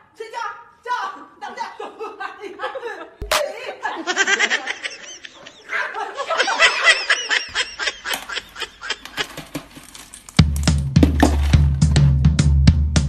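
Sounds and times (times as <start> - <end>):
high-pitched squealing laughter: 4.0 - 9.4
cereal poured from plastic container: 11.2 - 11.7.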